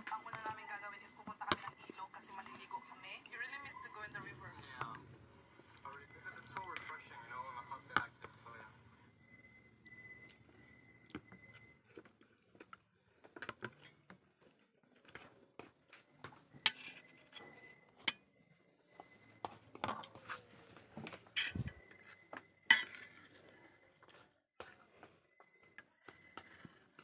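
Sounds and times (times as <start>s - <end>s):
metal spoon scraping a metal plate: 16.6s - 18.2s, 21.4s - 21.8s, 22.7s - 23.4s.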